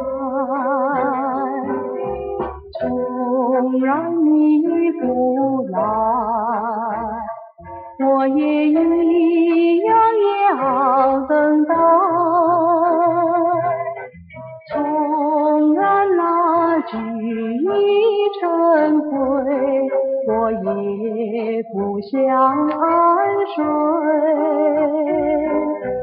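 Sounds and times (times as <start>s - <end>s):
woman singing with vibrato: 0.0s - 2.2s, 2.8s - 7.4s, 8.0s - 14.0s, 14.7s - 26.0s
instrumental backing music: 0.0s - 26.0s.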